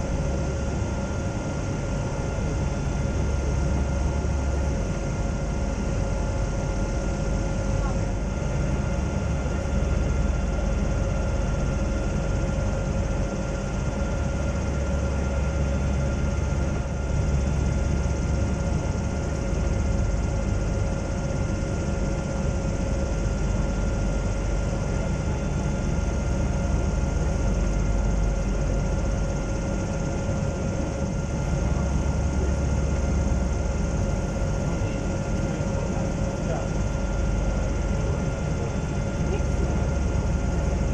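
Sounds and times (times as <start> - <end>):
airship engines droning: 0.0 - 40.9
steady humming tones: 0.0 - 40.9.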